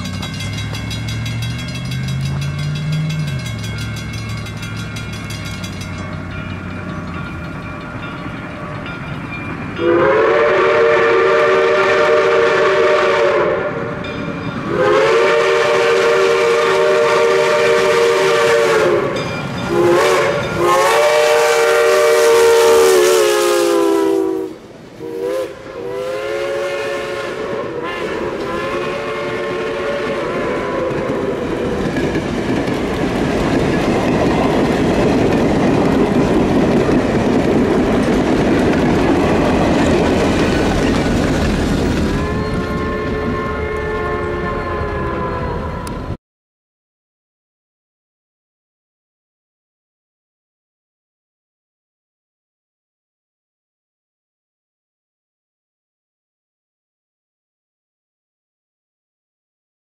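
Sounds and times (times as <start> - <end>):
train wheels clicking over rail joints: 0.0 - 9.8, 28.2 - 43.2
steam whistle blowing: 9.8 - 14.0, 14.6 - 31.8, 42.2 - 46.2.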